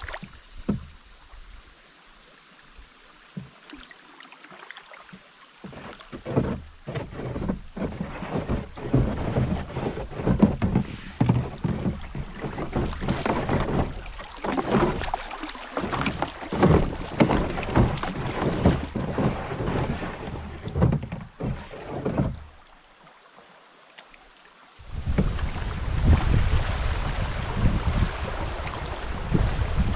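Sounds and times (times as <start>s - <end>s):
water rippling along hull: 0.0s - 29.9s
hull rubbing on stony bottom: 5.6s - 15.2s, 15.8s - 22.5s.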